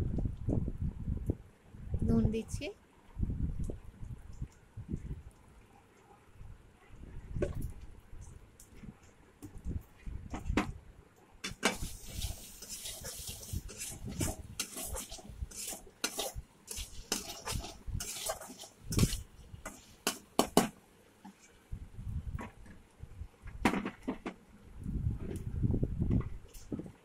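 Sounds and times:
metal spatula scraping a pan: 11.5s - 20.6s.

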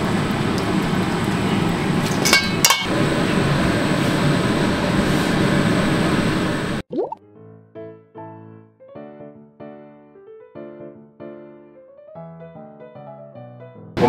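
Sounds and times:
kitchen background noise: 0.0s - 4.2s
cookware clinking: 2.0s - 2.9s.

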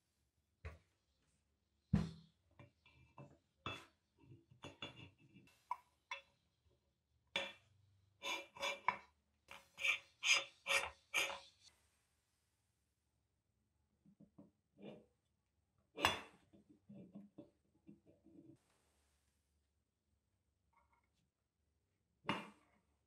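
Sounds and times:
knock on meat grinder: 2.0s - 2.2s.

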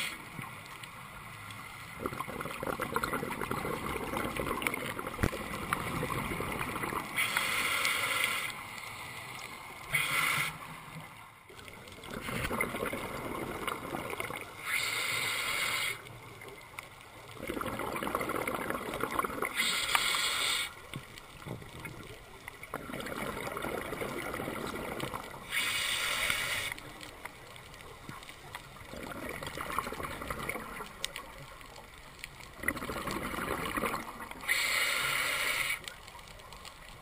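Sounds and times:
bubbling exhaust: 2.0s - 7.1s, 17.4s - 19.6s, 22.7s - 25.2s, 32.6s - 34.7s
hissing regulator inhales: 7.2s - 8.6s, 9.9s - 10.6s, 14.6s - 16.0s, 19.5s - 20.8s, 25.5s - 26.8s, 34.4s - 35.8s.

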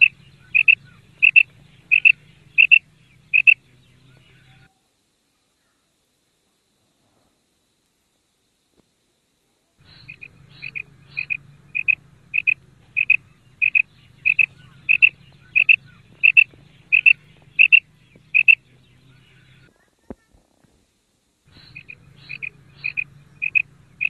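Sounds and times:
quail calling paired notes: 0.0s - 4.7s, 9.8s - 19.7s, 21.5s - 24.0s.

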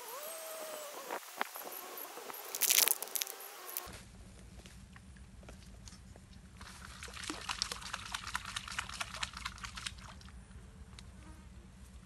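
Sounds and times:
water splashing: 6.6s - 10.3s.

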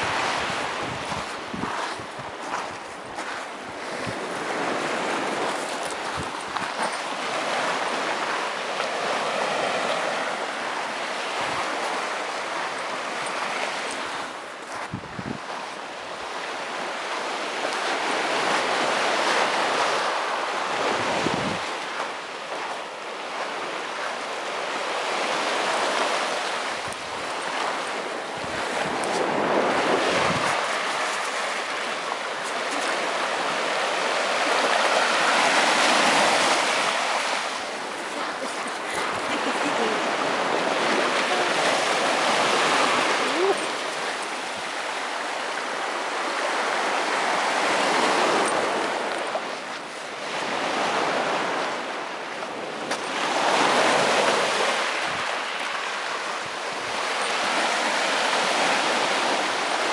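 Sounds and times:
wind buffeting microphone: 0.0s - 8.3s, 14.7s - 16.3s, 17.8s - 21.8s, 26.8s - 45.0s
waves washing up a beach: 0.0s - 59.9s.

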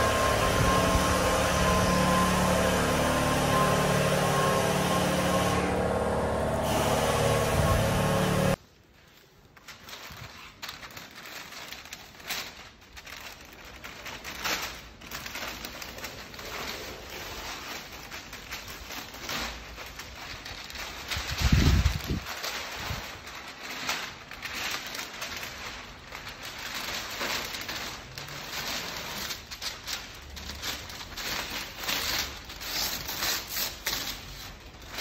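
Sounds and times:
machine hum with held tones: 0.0s - 8.6s
masking paper crackling: 0.0s - 35.0s.

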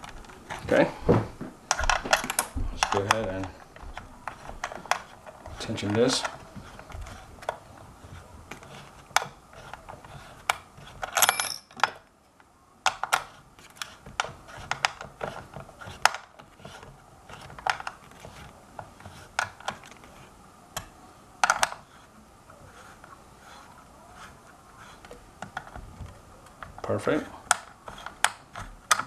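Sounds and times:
metal parts and tool clicking: 8.6s - 12.1s.

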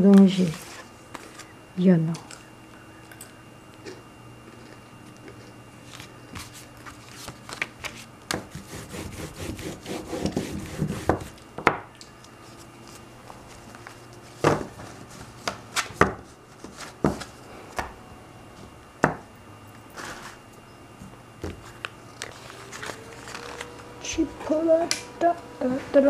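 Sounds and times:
paper rubbing against paper: 5.9s - 11.3s.

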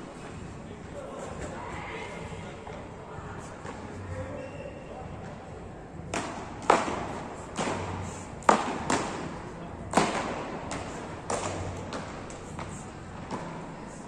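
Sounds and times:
paddles hitting ball: 6.1s - 13.6s.

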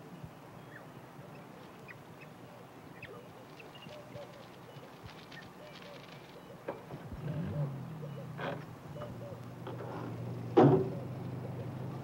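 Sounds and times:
soft twittering calls: 0.1s - 10.2s
wild dog pups chirping: 3.0s - 6.7s.

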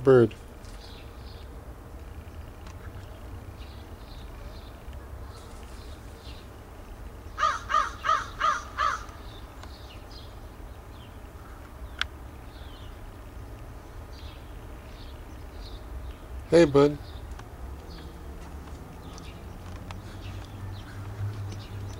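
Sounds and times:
crow cawing: 7.4s - 9.2s, 20.1s - 21.4s.

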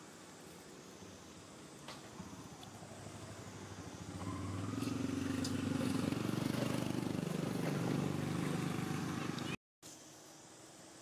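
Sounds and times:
vehicle engine running: 2.0s - 9.6s.

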